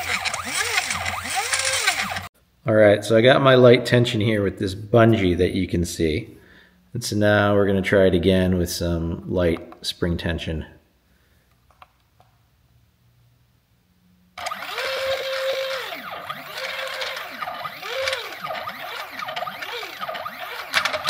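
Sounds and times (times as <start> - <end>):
safe dial jiggling: 0.0 - 2.3, 14.4 - 21.0
stepper motor whine: 0.0 - 2.3, 14.4 - 21.0.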